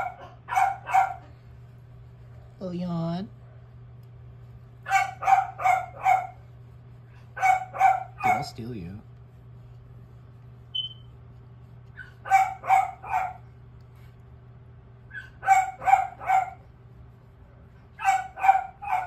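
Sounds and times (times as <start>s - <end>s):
dog barking: 0.0s - 1.4s, 4.8s - 6.4s, 7.3s - 8.6s, 11.9s - 13.5s, 15.1s - 16.7s, 17.9s - 19.0s.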